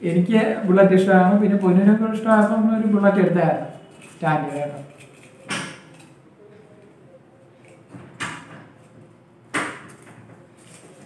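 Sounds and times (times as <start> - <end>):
paper slip handling noises: 1.4 - 6.9, 9.9 - 11.0.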